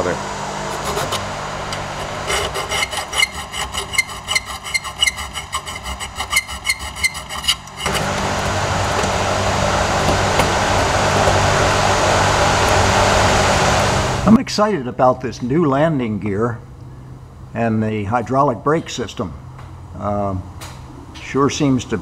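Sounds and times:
steady loud noise: 0.0 - 15.0
hand tool scraping metal: 0.7 - 8.2.

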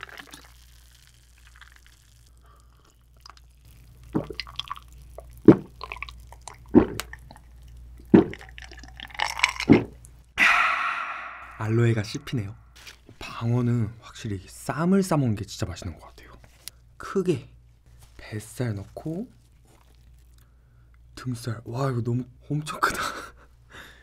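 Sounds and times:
loud gulping swallows: 0.0 - 11.6.

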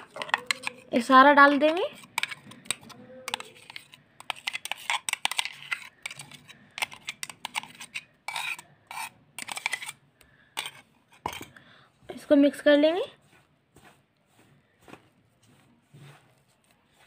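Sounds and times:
clicks taps and wet scrapes: 0.0 - 12.3.

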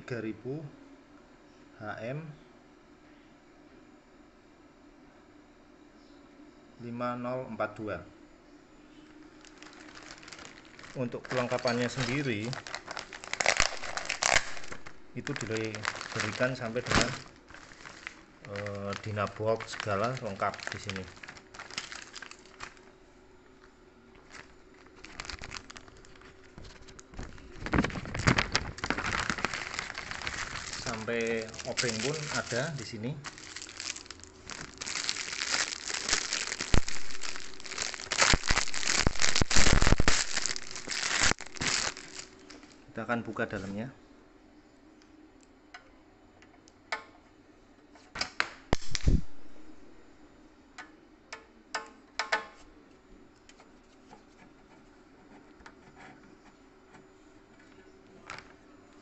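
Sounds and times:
faint steady hum: 0.0 - 59.0
plastic bags crinkling: 9.2 - 22.9, 24.2 - 42.8.

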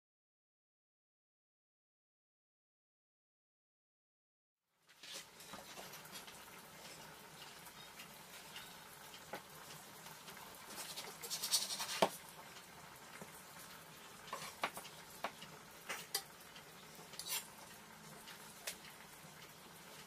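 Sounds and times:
knife sawing through meat: 17.2 - 17.5.

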